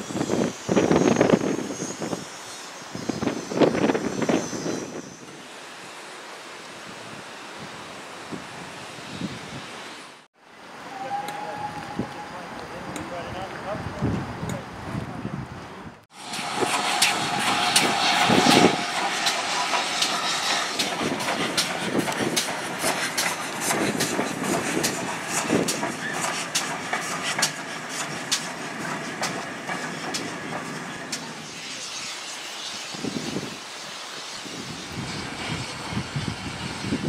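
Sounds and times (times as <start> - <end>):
train wheels clattering over rail joints: 16.2 - 31.4.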